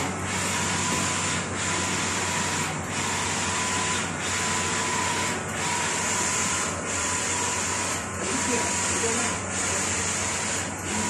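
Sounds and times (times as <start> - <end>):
inkjet printer whirring: 0.0 - 11.0.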